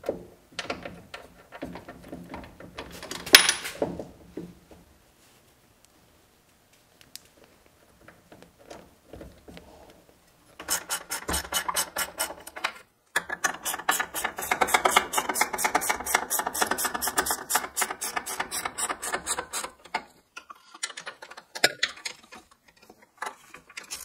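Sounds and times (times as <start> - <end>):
faint clicks of parts handled: 5.8 - 10.4.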